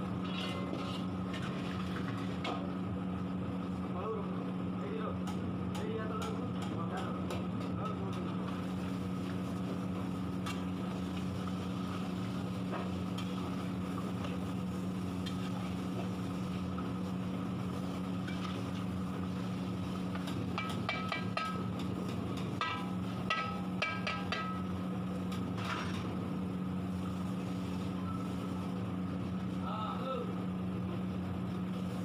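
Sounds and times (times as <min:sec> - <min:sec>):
low mechanical hum: 0:00.0 - 0:32.0
metal spatula scraping pan: 0:00.2 - 0:01.1.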